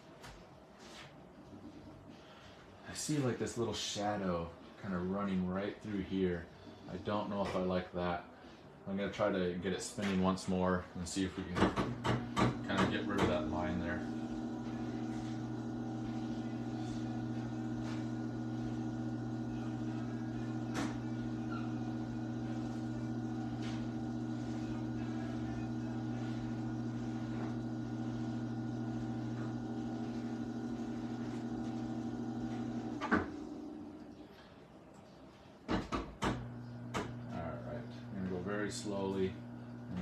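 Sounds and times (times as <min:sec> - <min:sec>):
potter's wheel motor humming: 0:11.7 - 0:34.2, 0:36.2 - 0:40.0.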